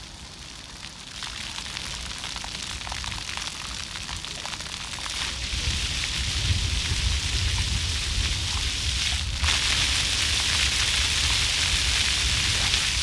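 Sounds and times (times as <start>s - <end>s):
fountain water splashing: 0.0s - 13.0s.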